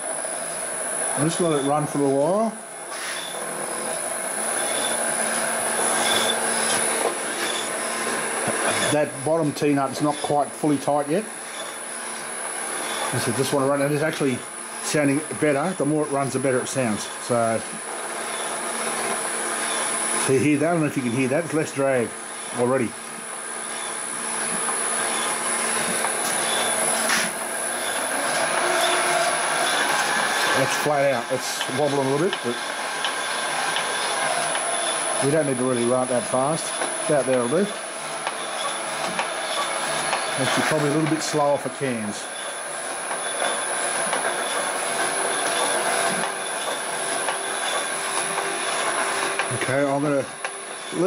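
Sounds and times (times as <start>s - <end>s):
high whine: 0.0s - 51.0s
electric motor cutter head running: 16.4s - 51.0s.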